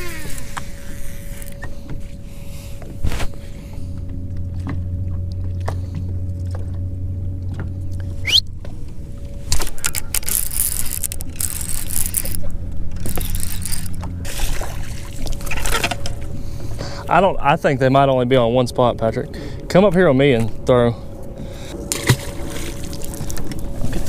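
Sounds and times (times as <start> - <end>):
reel spool whirring: 0.0 - 2.9, 9.1 - 14.3
low hum: 0.0 - 24.0
reel clicks: 9.5 - 14.1.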